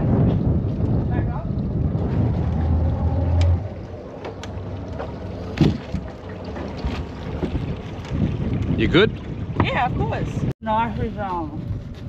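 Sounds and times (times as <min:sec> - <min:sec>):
wind rumble on microphone: 0:00.0 - 0:12.0
footsteps on metal boat: 0:04.2 - 0:10.1.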